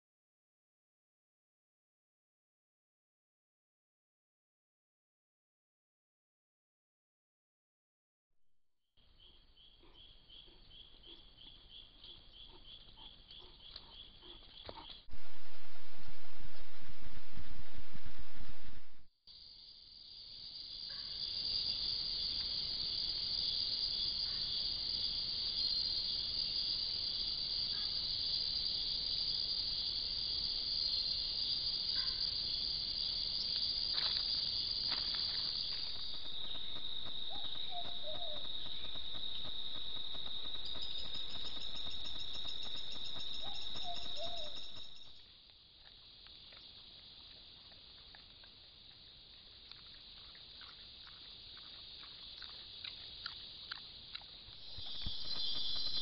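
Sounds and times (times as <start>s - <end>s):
faint forest background: 9.0s - 56.0s
higher insect trill: 19.4s - 45.3s, 50.0s - 56.0s
insects trilling: 19.4s - 56.0s.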